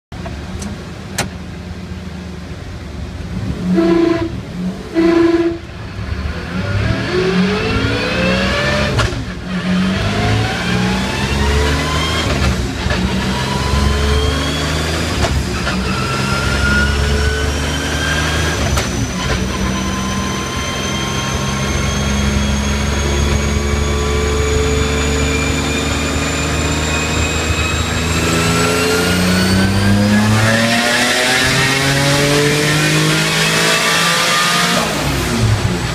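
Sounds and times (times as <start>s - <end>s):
car engine accelerating hard: 2.4s - 35.9s
high whine: 3.0s - 35.9s
engine blips: 3.6s - 33.4s.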